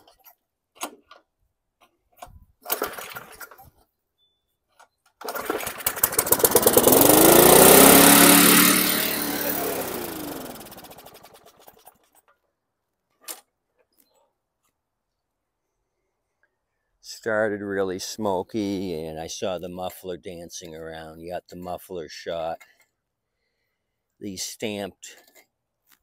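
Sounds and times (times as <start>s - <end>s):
lawn mower engine pull-started: 2.2s - 3.8s, 5.0s - 12.4s.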